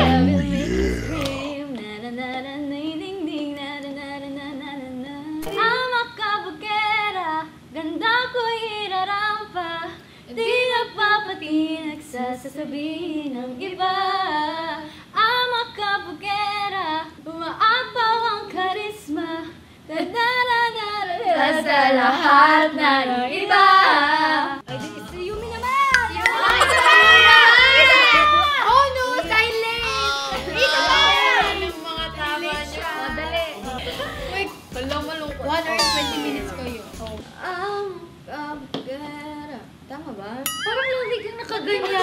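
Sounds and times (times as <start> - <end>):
woman singing a cappella: 0.0 - 29.9, 30.9 - 40.4
people laughing: 26.2 - 28.0.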